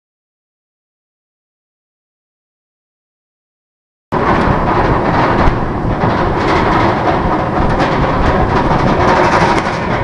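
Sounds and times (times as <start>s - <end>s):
roller coaster lift chain rattling: 4.2s - 10.0s.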